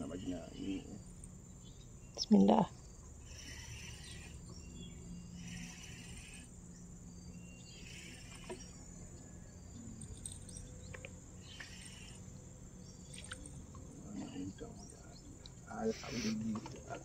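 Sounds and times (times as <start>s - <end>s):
high-pitched insect buzz: 0.0s - 14.5s
raspy insect chirp: 0.0s - 16.4s.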